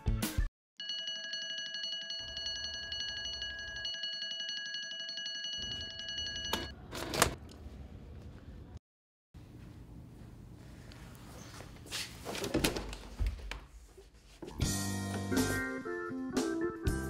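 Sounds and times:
alarm clock ringing: 0:00.8 - 0:06.8.

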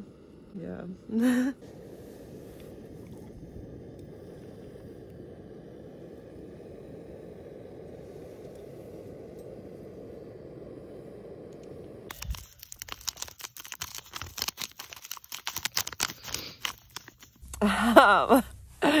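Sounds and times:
woman's voice: 0:00.5 - 0:01.6, 0:17.6 - 0:19.0
paper sachet crinkling: 0:12.1 - 0:17.4.

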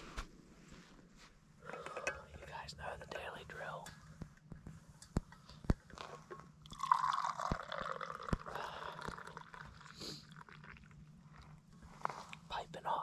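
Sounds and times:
liquid pouring into metal cup: 0:05.9 - 0:11.0.

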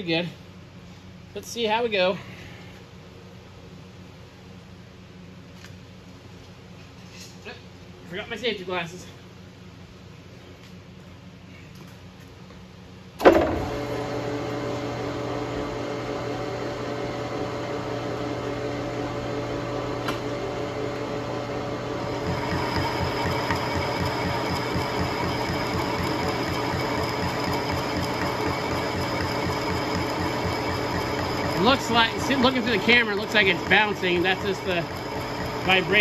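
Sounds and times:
lathe starting clunk: 0:13.2 - 0:15.4, 0:19.6 - 0:36.0
metal lathe running: 0:13.5 - 0:36.0
high whine: 0:20.1 - 0:36.0
cutting tool knocking: 0:22.2 - 0:36.0.

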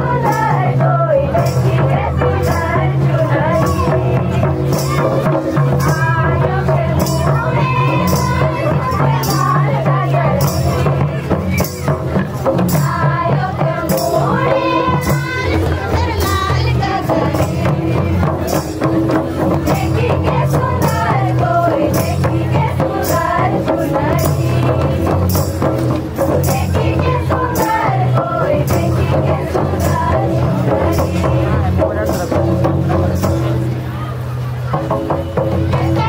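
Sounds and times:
drum beats: 0:00.0 - 0:36.0
jingling tambourine-like percussion: 0:00.0 - 0:36.0.

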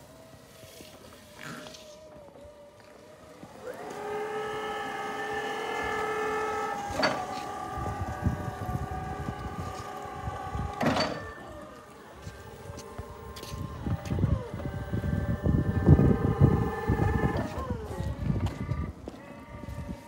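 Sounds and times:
forklift electric motor whining: 0:00.9 - 0:20.0.

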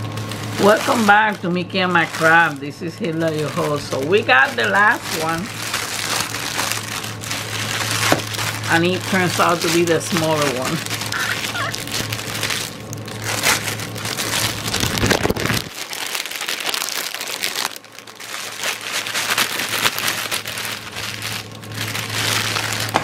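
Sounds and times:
packaging crinkling and rustling: 0:00.0 - 0:23.0.

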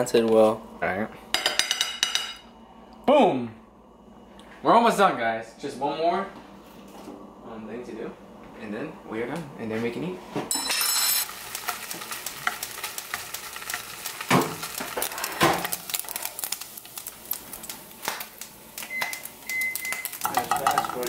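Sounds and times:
bacon sizzling in a frying pan: 0:11.2 - 0:21.0.

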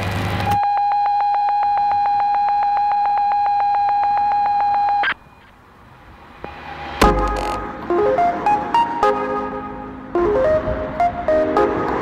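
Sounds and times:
rapid electronic beeps: 0:06.5 - 0:09.3.

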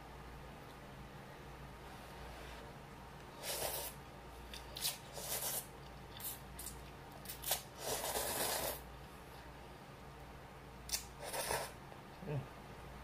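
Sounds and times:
person slurping noodles: 0:07.5 - 0:08.8, 0:11.2 - 0:11.8.

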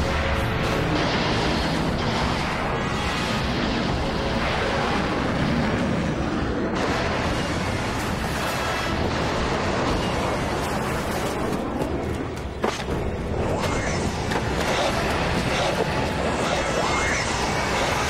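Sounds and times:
energy weapon fire and blasts: 0:00.0 - 0:11.8.

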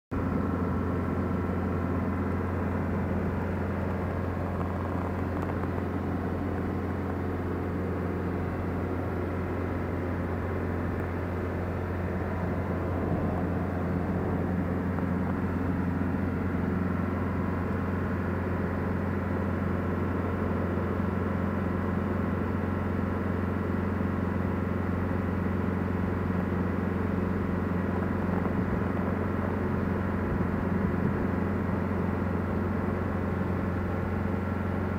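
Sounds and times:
tyre and road noise: 0:00.1 - 0:19.8, 0:27.0 - 0:34.1
diesel engine drone inside car: 0:00.1 - 0:34.9.

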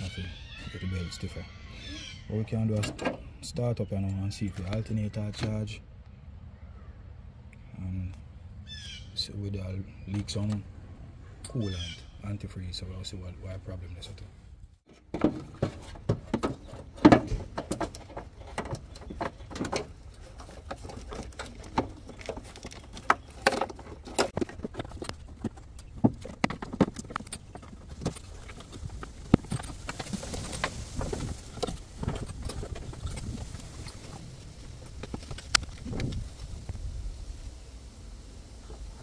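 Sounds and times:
plastic parts clicking and knocking: 0:14.9 - 0:34.0.

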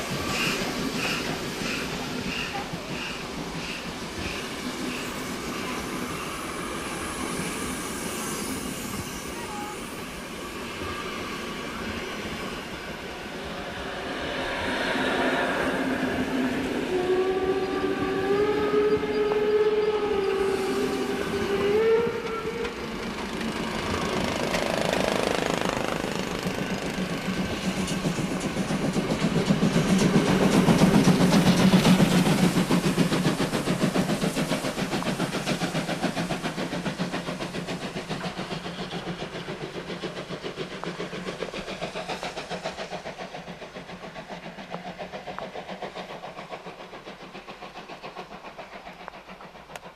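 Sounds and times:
steam locomotive exhaust beats: 0:00.0 - 0:49.9
train wheels rolling: 0:00.0 - 0:49.9
steam locomotive whistle: 0:16.6 - 0:23.0.

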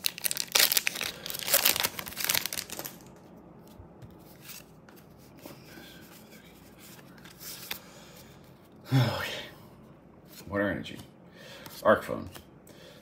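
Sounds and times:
foil wrapper tearing and crinkling: 0:00.0 - 0:03.2
cards rustling out of pack: 0:00.0 - 0:05.1.

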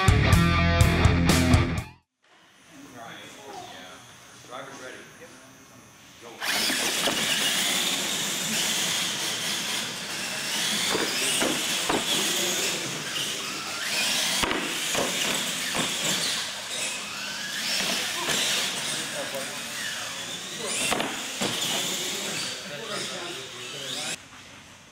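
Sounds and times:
tire noise on concrete: 0:06.1 - 0:24.9
toy truck motors whining: 0:06.2 - 0:24.2.

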